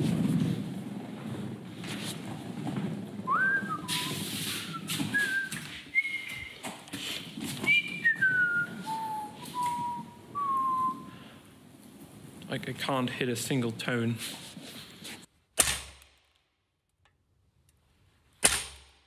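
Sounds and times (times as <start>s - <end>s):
low rustling: 0.0s - 15.3s
man whistling off-key: 3.3s - 6.7s, 7.6s - 11.2s.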